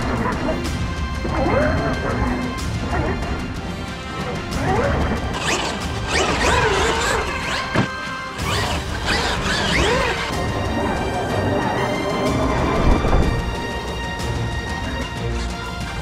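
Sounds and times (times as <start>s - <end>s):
background music: 0.0s - 16.0s
electric motor whining: 4.4s - 14.1s.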